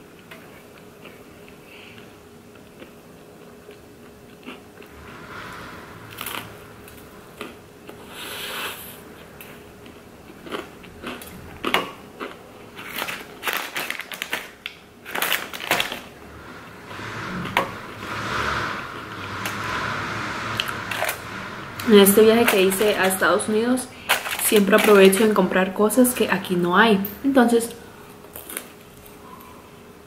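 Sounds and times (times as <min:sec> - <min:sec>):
chewing and crunching: 0:00.1 - 0:05.0, 0:09.2 - 0:16.1, 0:28.2 - 0:29.5
snack bag crinkling: 0:10.3 - 0:16.1, 0:28.2 - 0:29.2.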